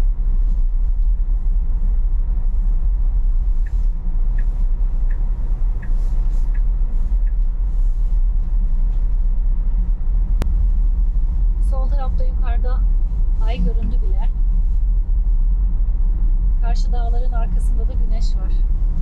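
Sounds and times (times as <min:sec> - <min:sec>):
road and tyre rumble in car: 0:00.0 - 0:19.0
turn signal ticking: 0:00.7 - 0:09.6.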